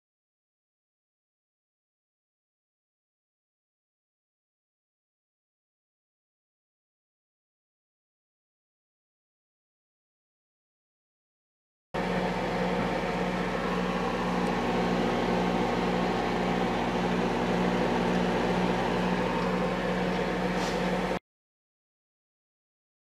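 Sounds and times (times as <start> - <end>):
machine humming: 12.0 - 21.2.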